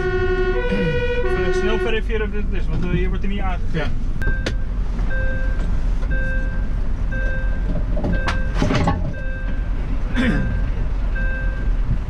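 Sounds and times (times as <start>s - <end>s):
fire engine running: 0.0s - 12.0s
electronic warning beep: 4.2s - 9.7s, 10.5s - 11.7s.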